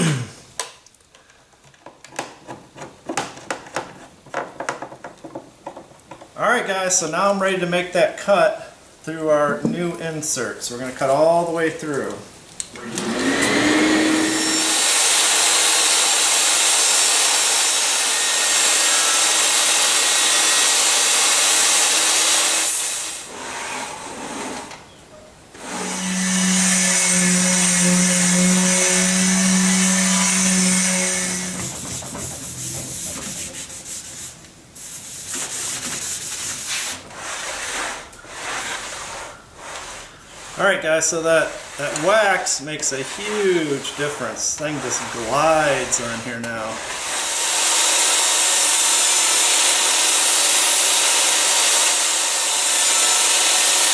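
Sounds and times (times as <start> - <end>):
table saw cutting plywood: 12.8 - 24.7, 25.6 - 34.4, 35.1 - 53.9
plywood sliding on saw table: 13.0 - 15.1, 22.7 - 24.8, 28.9 - 34.4, 35.2 - 40.6, 41.5 - 46.0.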